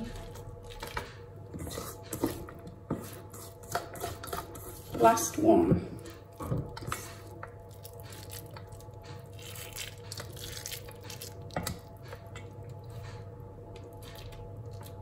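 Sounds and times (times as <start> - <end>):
hands squishing wet mixture: 0.0 - 15.0.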